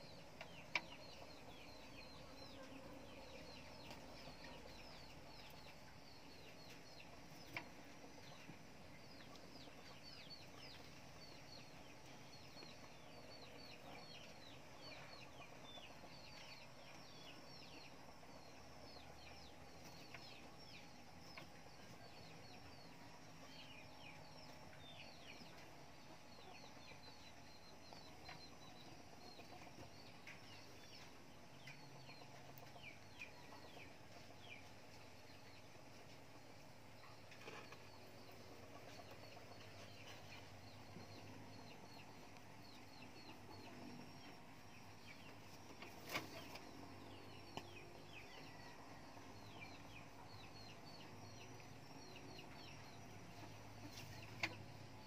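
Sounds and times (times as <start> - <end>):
faint bird chirping: 0.0 - 55.0.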